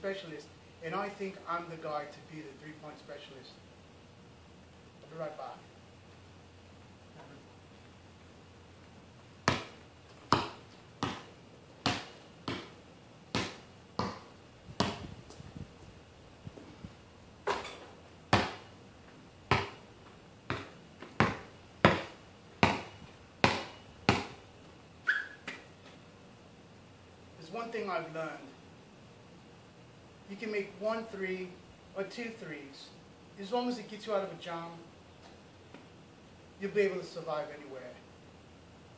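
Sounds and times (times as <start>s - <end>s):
basketball bouncing on concrete: 9.4s - 15.2s, 17.4s - 18.7s, 19.5s - 19.8s, 20.5s - 24.4s.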